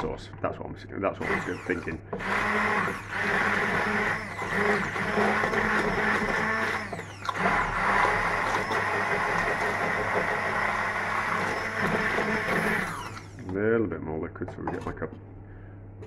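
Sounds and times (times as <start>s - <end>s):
electric blender running: 1.2s - 13.4s.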